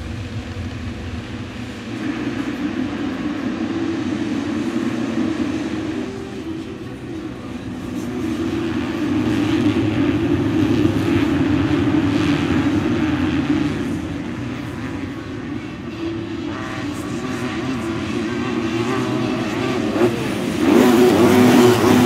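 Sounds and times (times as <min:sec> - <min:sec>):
motocross bikes revving: 0:00.0 - 0:22.0.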